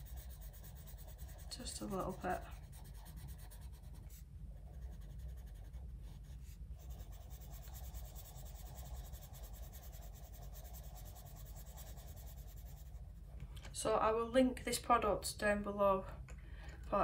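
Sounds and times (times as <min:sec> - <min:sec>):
pencil scratching on paper: 0:00.0 - 0:13.0.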